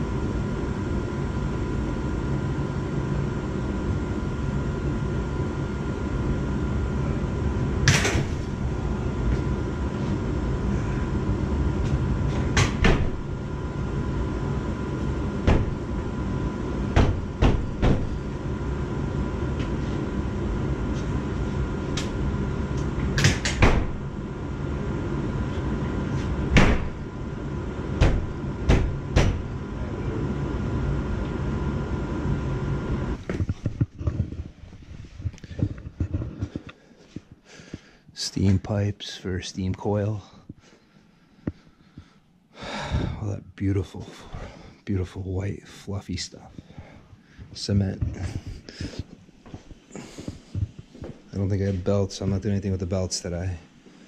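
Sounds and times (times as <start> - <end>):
low machinery hum: 0.0 - 54.0
metal door knocks and clicks: 28.0 - 29.5.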